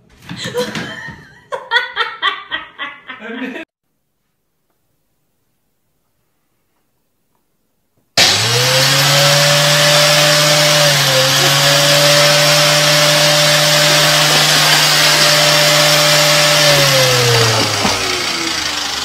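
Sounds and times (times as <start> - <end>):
electric motor whining: 8.2 - 19.0.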